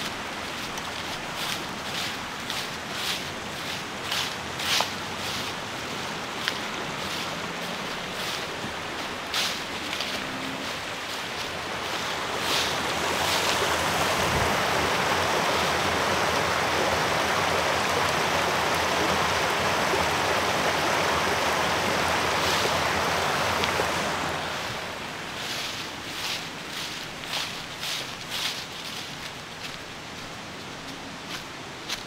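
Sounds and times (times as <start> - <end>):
footsteps on trail: 0.0 - 14.2, 25.3 - 32.0
stream water rushing: 0.0 - 32.0.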